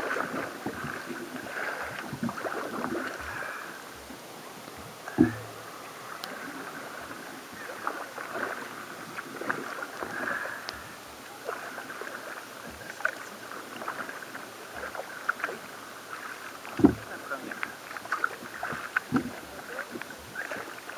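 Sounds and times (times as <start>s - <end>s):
paddle strokes in water: 0.0s - 20.9s
water lapping against hull: 0.0s - 20.9s
small splashes and drips: 4.6s - 20.9s.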